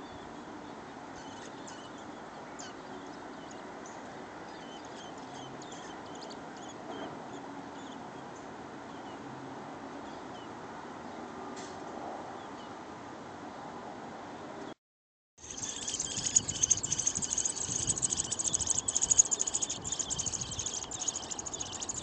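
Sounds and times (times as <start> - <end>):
small birds chirping: 0.1 - 9.2, 15.4 - 22.0.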